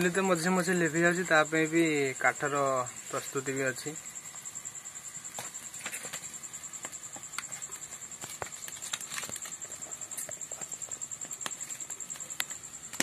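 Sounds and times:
cricket trilling: 0.0 - 13.0
firewood clicking and crackling: 5.3 - 13.0.

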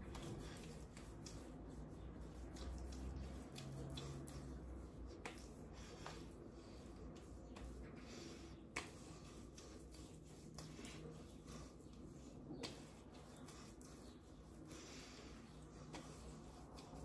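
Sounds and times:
hands rubbing balm into skin: 0.0 - 17.0.

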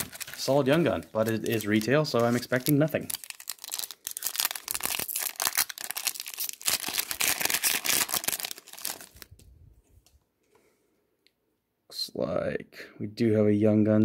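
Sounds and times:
foil wrapper tearing and crinkling: 0.0 - 9.3.

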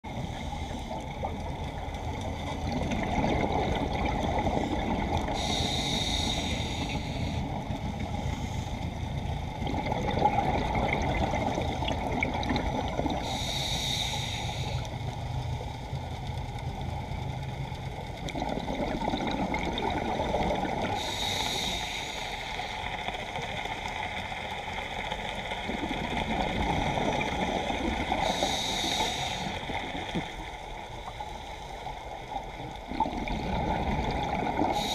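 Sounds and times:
underwater rumble of water: 0.0 - 34.9
bubbling exhaled air: 2.6 - 7.6, 9.5 - 14.8, 18.2 - 22.2, 32.8 - 34.9.

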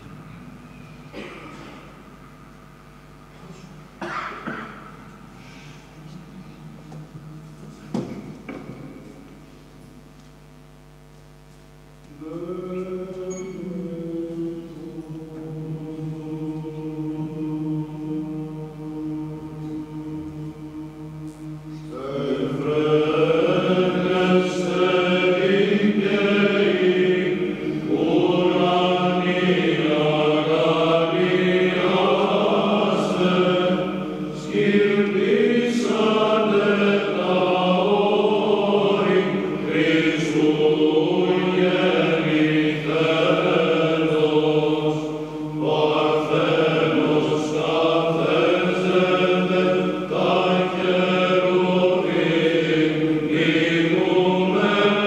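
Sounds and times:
low held vocal drone: 0.0 - 9.6, 11.9 - 55.0
male choir chanting: 12.1 - 55.0.

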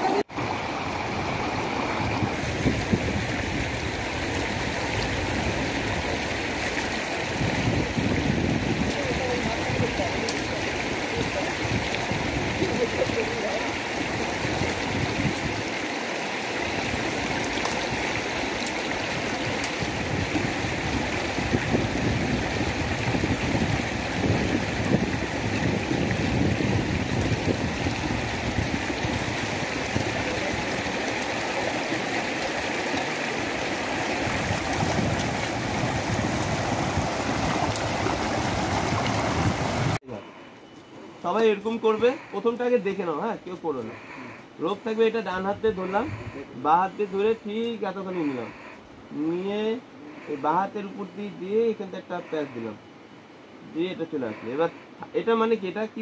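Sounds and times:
stream rushing over stones: 0.0 - 40.0.

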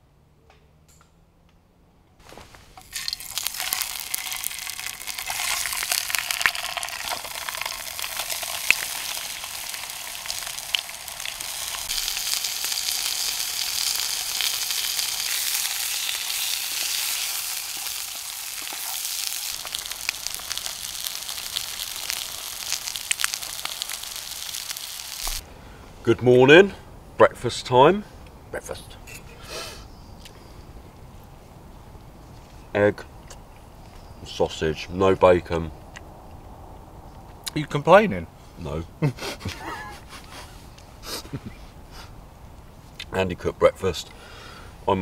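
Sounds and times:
food sizzling in a frying pan: 2.8 - 25.4.

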